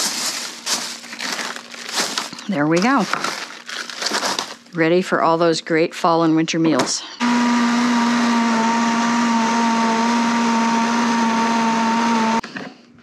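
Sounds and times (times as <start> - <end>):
blender motor hum and whine: 7.2 - 12.4.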